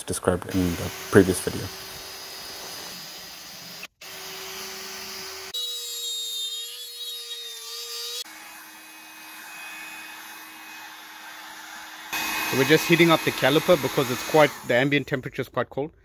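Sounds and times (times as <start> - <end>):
cordless drill spinning: 0.5 - 5.6, 8.2 - 15.0
heat gun blowing: 0.5 - 5.6, 8.2 - 15.0
rotary tool grinding with high whine: 0.5 - 15.0.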